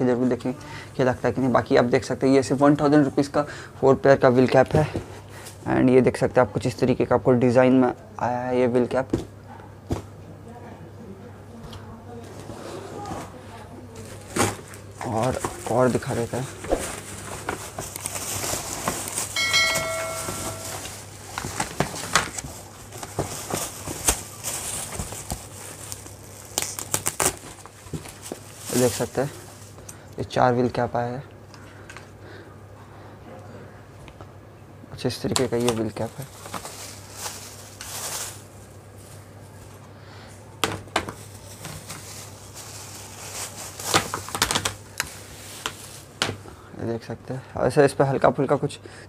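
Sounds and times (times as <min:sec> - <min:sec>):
plastic wrapping crinkling: 0:13.9 - 0:29.9, 0:35.3 - 0:39.8, 0:40.8 - 0:46.4
plastic covers knocking together: 0:14.1 - 0:29.2, 0:40.6 - 0:46.4
cardboard tearing: 0:21.4 - 0:29.0.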